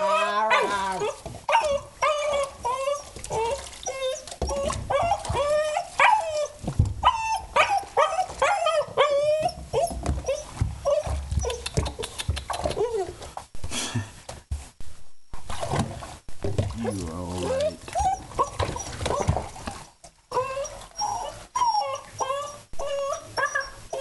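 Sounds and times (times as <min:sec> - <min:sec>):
dog whining and yipping: 0:00.0 - 0:13.2, 0:17.4 - 0:19.4, 0:20.3 - 0:24.0.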